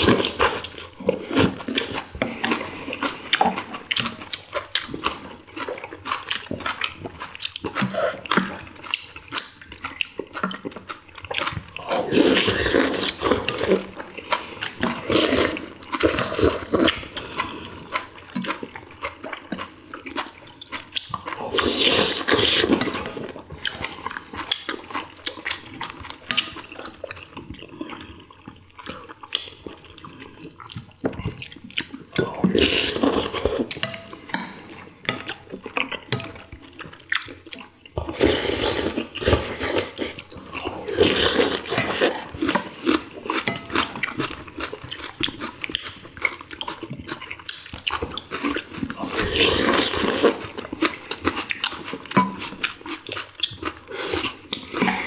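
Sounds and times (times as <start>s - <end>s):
wet chewing: 0.0s - 55.0s
slurping of broth: 11.8s - 17.9s, 38.0s - 43.1s.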